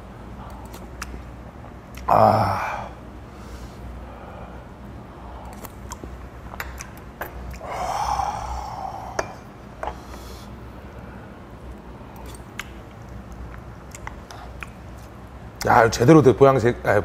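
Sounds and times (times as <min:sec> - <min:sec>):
person exhaling: 0:02.1 - 0:04.6, 0:07.6 - 0:09.4.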